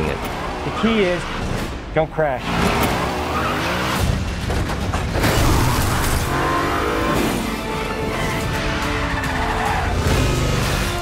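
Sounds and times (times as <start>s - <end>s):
driving film music: 0.0s - 11.0s
car engine revving hard: 2.4s - 4.2s.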